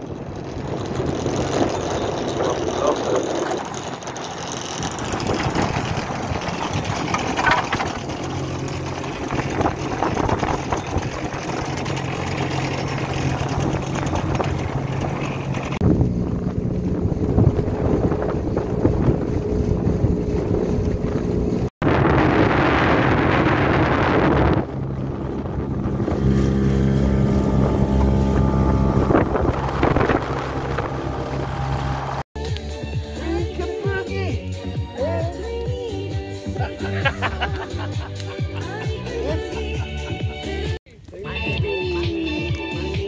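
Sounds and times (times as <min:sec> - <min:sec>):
wind buffeting microphone: 0:00.0 - 0:32.2
boat motor running: 0:00.0 - 0:43.0.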